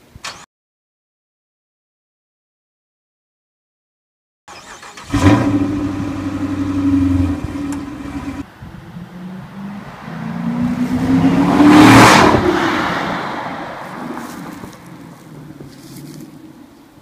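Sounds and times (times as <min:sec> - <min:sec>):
car engine starting and idling: 0:04.5 - 0:08.5
car accelerating past: 0:04.9 - 0:15.5.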